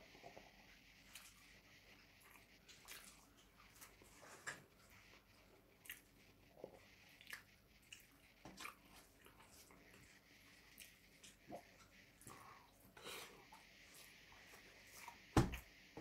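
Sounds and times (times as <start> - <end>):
chewing and lip smacks: 2.2 - 4.0, 5.8 - 6.1, 7.2 - 9.8.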